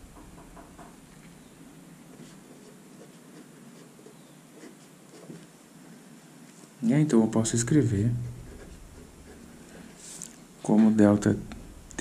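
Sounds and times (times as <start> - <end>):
pen scratching on paper: 2.1 - 5.5, 8.3 - 10.0.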